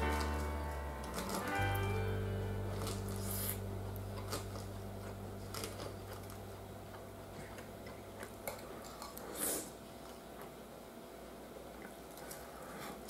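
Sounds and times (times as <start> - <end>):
background music low note: 0.0 - 8.2.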